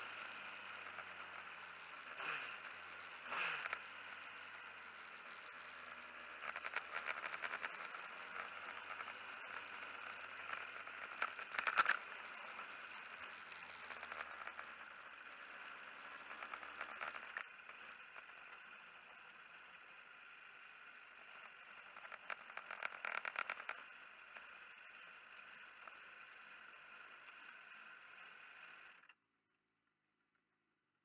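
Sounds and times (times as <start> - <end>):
motorcycle engine at low revs: 0.0 - 29.2.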